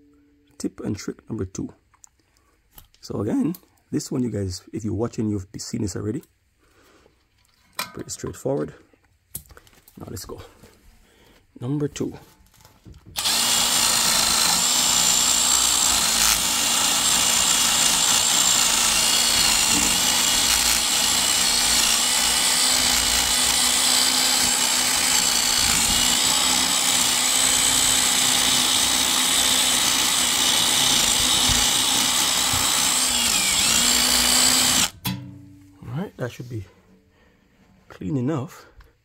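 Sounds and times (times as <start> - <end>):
cordless drill motor whine: 13.2 - 35.0.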